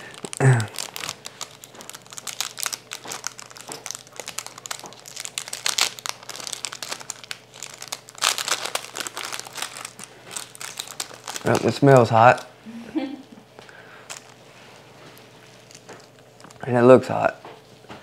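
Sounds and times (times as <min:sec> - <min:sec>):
packet crinkling and tearing: 0:00.0 - 0:12.5, 0:14.0 - 0:14.4, 0:15.2 - 0:16.6.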